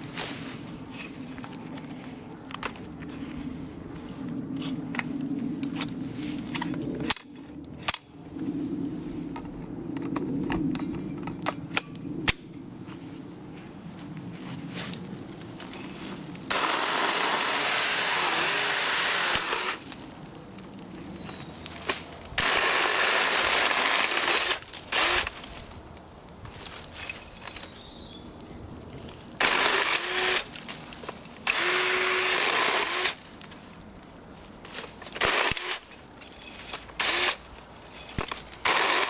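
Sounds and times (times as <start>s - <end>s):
battery chainsaw cutting branches: 16.5s - 19.9s, 21.8s - 25.6s, 29.4s - 30.8s, 31.4s - 33.2s, 34.8s - 37.5s, 38.1s - 39.0s
sticks clicking and crackling: 19.3s - 22.6s, 23.4s - 39.0s.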